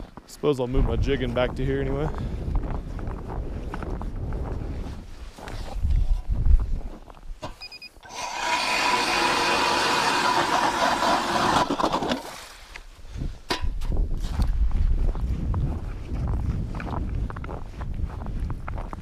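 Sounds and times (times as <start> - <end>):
double beep: 7.6 - 8.0
electric ice auger drilling ice: 8.0 - 12.4.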